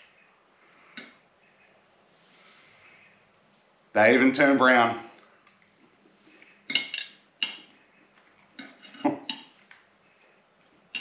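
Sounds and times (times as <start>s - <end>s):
metal utensil clinking in glass jar: 6.7s - 7.6s.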